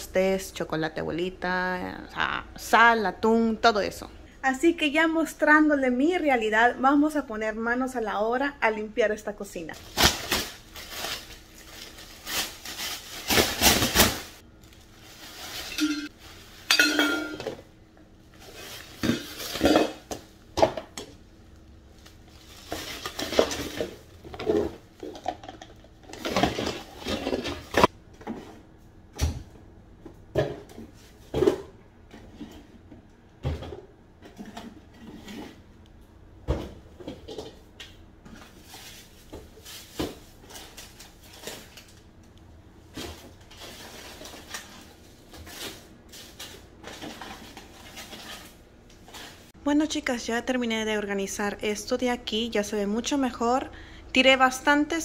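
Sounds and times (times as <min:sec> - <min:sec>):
plastic trash bag rustling: 0:09.8 - 0:16.8, 0:38.4 - 0:42.0
dishes clinking and clattering: 0:16.7 - 0:17.6.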